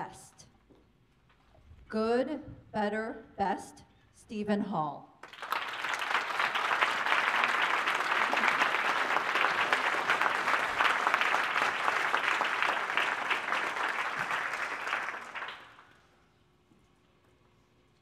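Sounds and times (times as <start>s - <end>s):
audience applauding: 5.2s - 16.0s.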